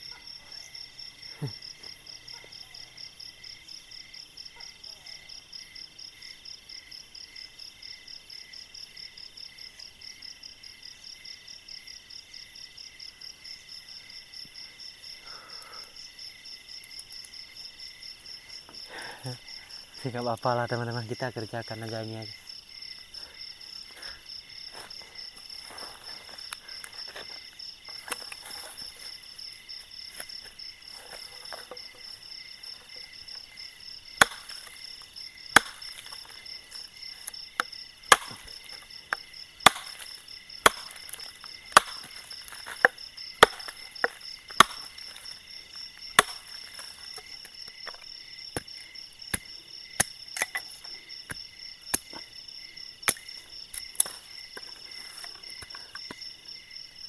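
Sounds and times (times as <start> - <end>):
night insects chirping: 0.0 - 57.0
wood chopping: 24.0 - 29.1, 30.1 - 33.4, 34.2 - 45.4, 46.0 - 52.3, 53.0 - 56.2.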